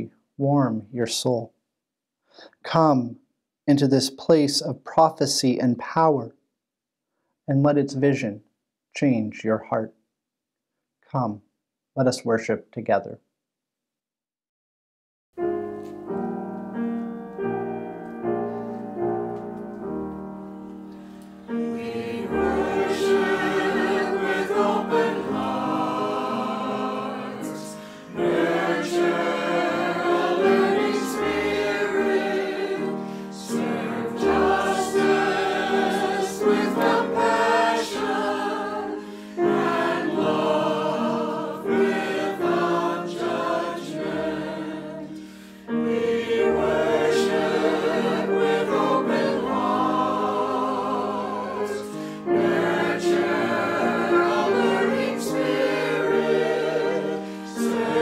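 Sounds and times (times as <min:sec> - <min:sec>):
piano playing: 0:15.4 - 0:58.0
choir singing a hymn: 0:16.2 - 0:58.0.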